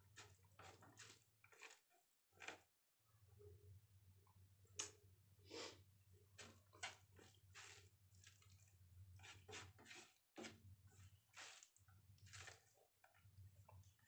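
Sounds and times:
soft wet squelches: 0:04.2 - 0:14.0.

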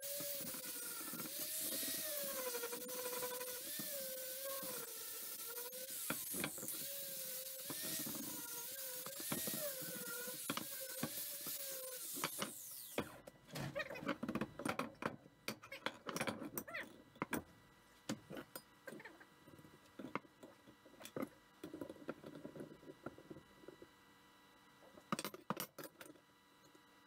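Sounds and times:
angle grinder grinding steel: 0:00.0 - 0:13.0.

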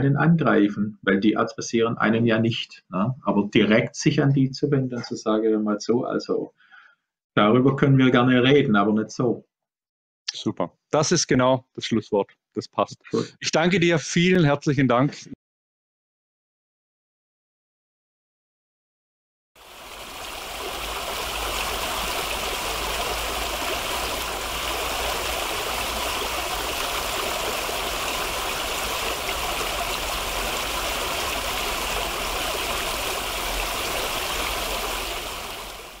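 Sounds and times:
fountain splashing into a pool: 0:19.6 - 0:36.0.

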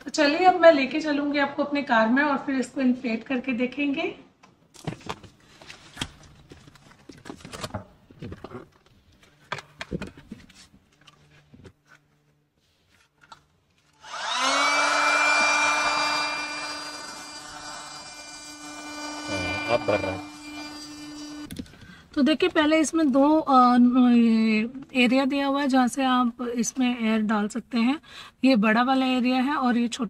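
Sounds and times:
electric air pump humming: 0:14.0 - 0:21.5.

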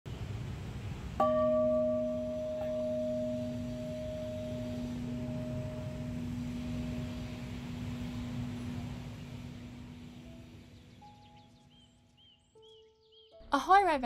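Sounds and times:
wooden log striking bell: 0:01.2 - 0:10.0
bell ringing deep tone: 0:01.2 - 0:11.2.

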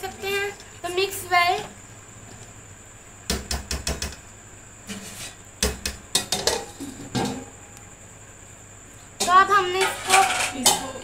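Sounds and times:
metal spoon clanking on pot: 0:09.2 - 0:11.0.

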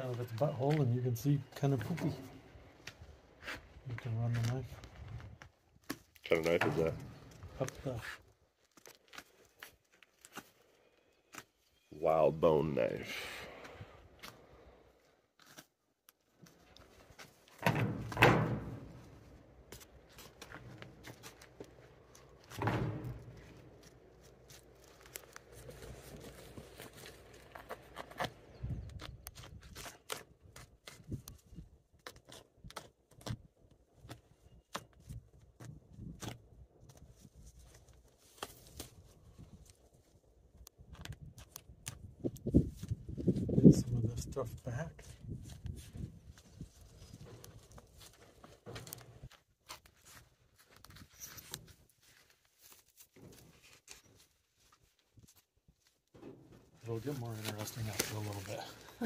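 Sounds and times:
rustling and thudding: 0:17.5 - 0:28.0, 0:56.1 - 0:58.6.

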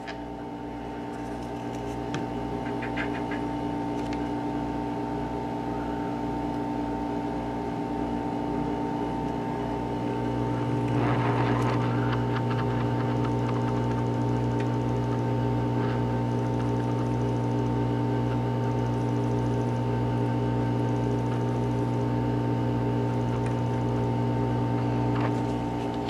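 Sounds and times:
air blower hum: 0:00.0 - 0:26.0
low pulsing: 0:09.4 - 0:17.9.

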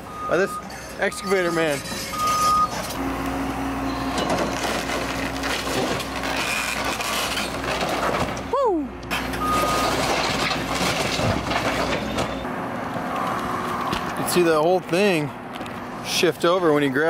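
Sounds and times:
excavator diesel engine under load: 0:00.0 - 0:14.3
wood and debris cracking and crashing: 0:04.1 - 0:08.5, 0:09.1 - 0:12.4.

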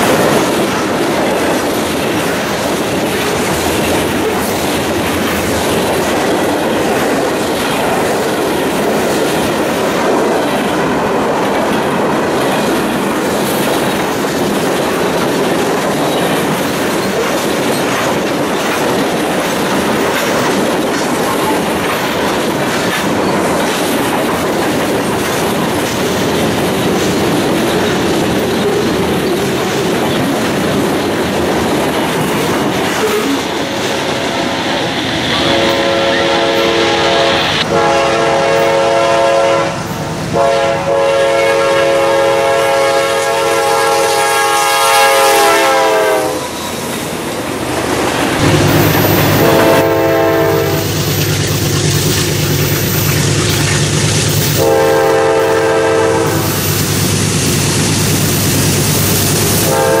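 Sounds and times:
rail cars rumbling and clattering: 0:00.0 - 1:00.0
locomotive air horn blasts: 0:35.4 - 0:46.6, 0:49.2 - 0:50.9, 0:54.6 - 0:56.5, 0:59.6 - 1:00.0.

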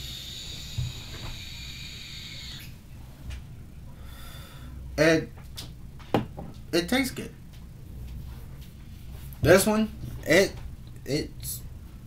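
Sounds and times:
vape coil hissing: 0:00.0 - 0:02.8.

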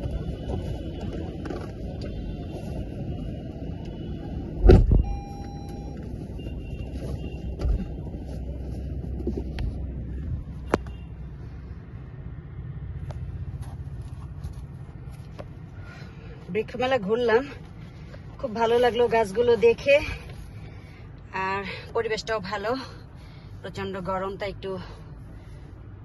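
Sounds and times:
car door shutting: 0:04.6 - 0:06.0
brief electronic tone: 0:05.0 - 0:06.8.

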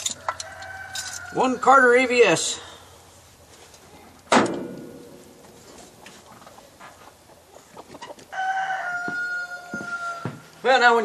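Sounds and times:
rooster crowing: 0:00.0 - 0:01.7, 0:08.3 - 0:10.5.

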